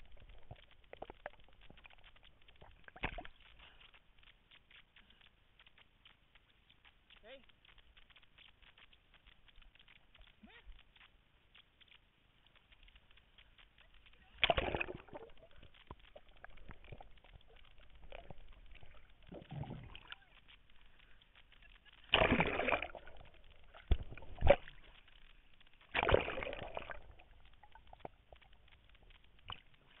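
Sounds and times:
water sloshing and gurgling: 0:00.0 - 0:04.0, 0:14.3 - 0:30.0
loud splashing: 0:22.1 - 0:23.0.

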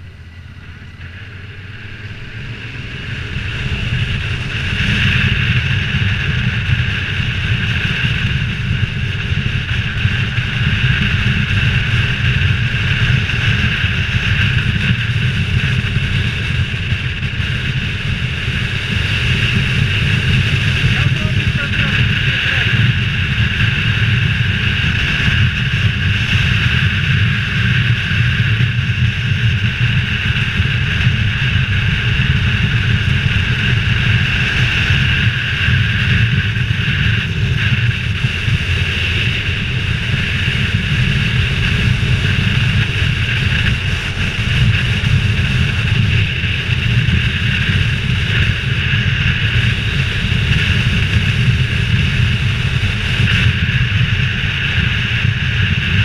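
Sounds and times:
motorcycle engine and road drone: 0:00.0 - 0:56.0.

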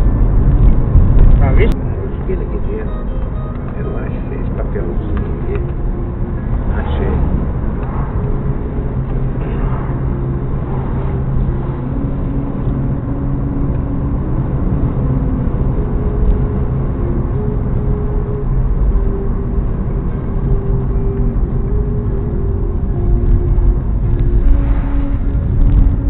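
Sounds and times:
engine and tyre rumble: 0:00.0 - 0:26.0
engine hum shifting pitch: 0:00.0 - 0:26.0.

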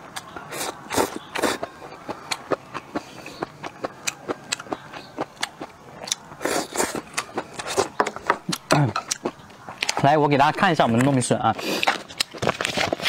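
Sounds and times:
chewing crunchy food: 0:00.1 - 0:13.0.

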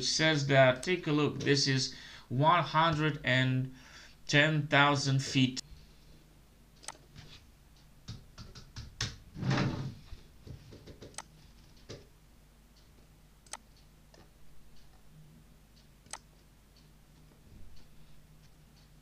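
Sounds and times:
computer mouse clicks: 0:06.8 - 0:07.2, 0:10.8 - 0:12.1, 0:12.8 - 0:15.0, 0:16.0 - 0:16.3.

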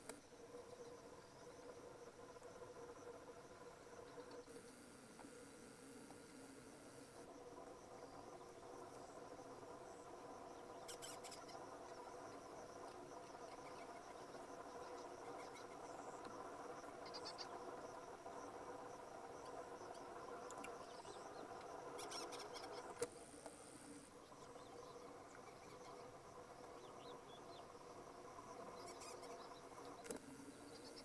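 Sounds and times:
high insect-like chirps: 0:00.0 - 0:31.0
steady low hum: 0:00.0 - 0:31.0.

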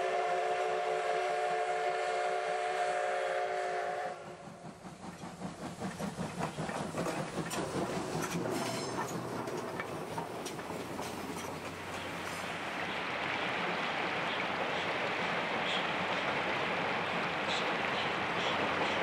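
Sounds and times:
steam whistle chord: 0:00.0 - 0:04.4
steam locomotive exhaust chuffing: 0:00.0 - 0:19.0
train running clatter: 0:03.5 - 0:19.0.

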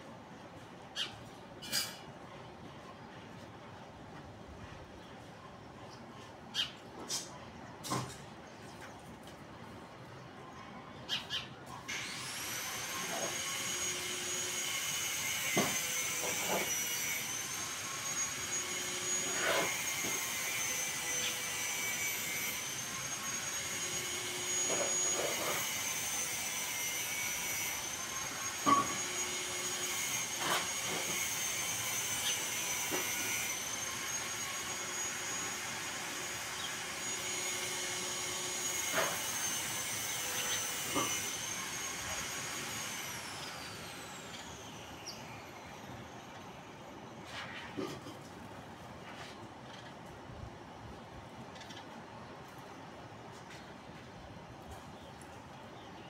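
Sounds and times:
high-speed electric motor whining: 0:11.9 - 0:46.2.

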